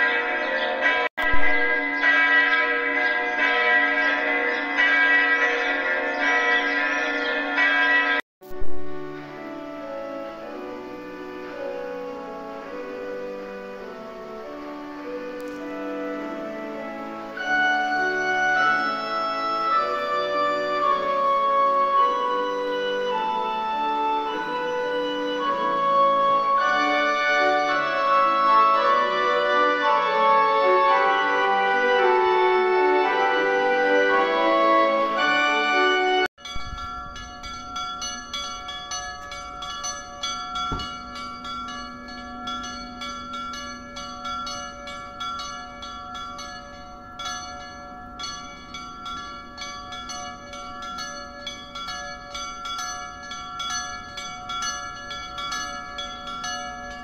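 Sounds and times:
organ music: 0:00.0 - 0:36.3
church bells ringing: 0:00.0 - 0:57.0.

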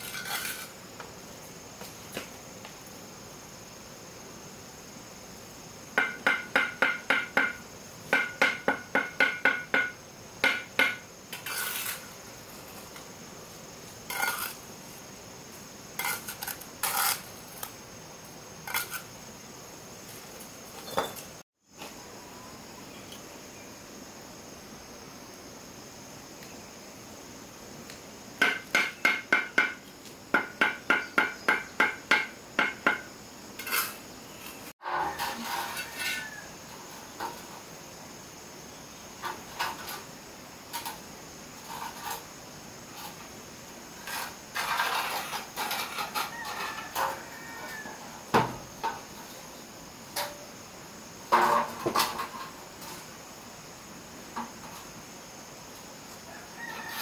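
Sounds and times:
scrapes and knocks: 0:00.0 - 0:01.2, 0:10.5 - 0:13.1, 0:14.0 - 0:14.6, 0:18.7 - 0:19.1, 0:33.6 - 0:37.6, 0:41.6 - 0:42.3, 0:44.0 - 0:49.5, 0:51.3 - 0:53.1.

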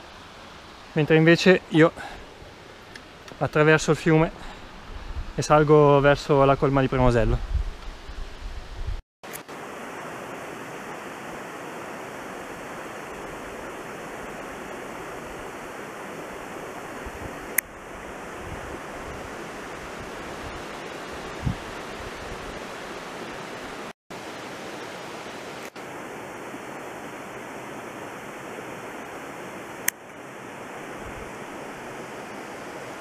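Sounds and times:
stream water rushing: 0:00.0 - 0:07.2, 0:09.3 - 0:33.0.

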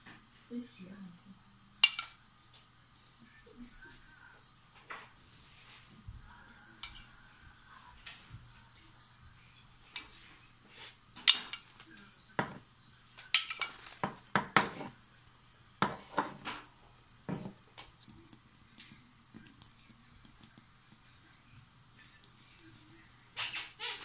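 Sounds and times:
cutlery clinking against dishes: 0:01.8 - 0:02.1, 0:11.2 - 0:11.8, 0:13.2 - 0:14.9.

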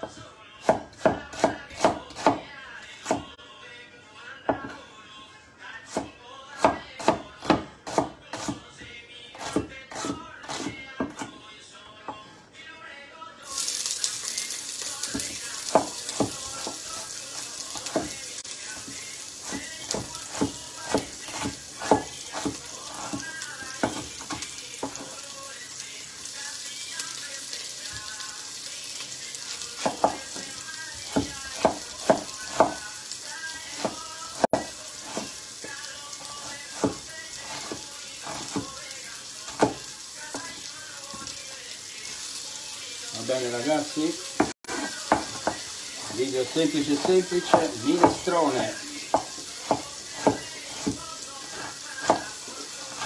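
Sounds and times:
onion sizzling in oil: 0:13.4 - 0:53.0
knife strikes on cutting board: 0:19.5 - 0:23.2, 0:29.8 - 0:30.2, 0:44.4 - 0:46.2, 0:47.0 - 0:48.3.

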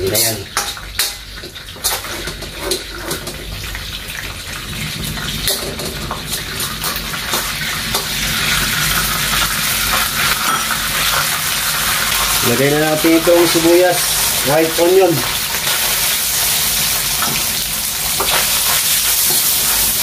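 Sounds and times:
oil sizzling in a wok: 0:00.0 - 0:20.0
metal ladle scraping pan: 0:00.2 - 0:03.5, 0:05.4 - 0:08.2.

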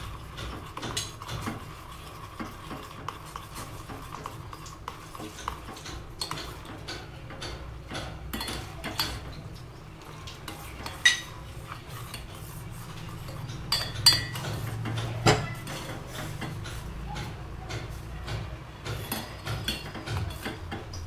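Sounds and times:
spoon stirring in metal pot: 0:00.0 - 0:21.0
spoon clinking on pot: 0:05.3 - 0:09.4, 0:10.6 - 0:11.4, 0:13.2 - 0:17.3.

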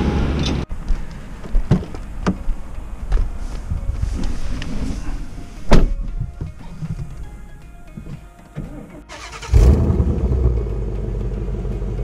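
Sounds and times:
low rumble: 0:09.6 - 0:12.0.

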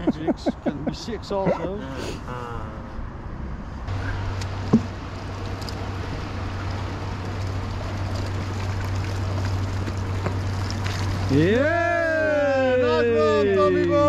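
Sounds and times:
water splashing and churning: 0:03.9 - 0:12.6.

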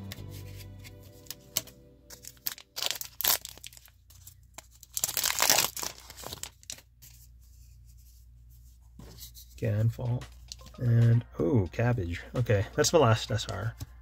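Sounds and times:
wrapper crinkling and tearing: 0:00.5 - 0:06.9.

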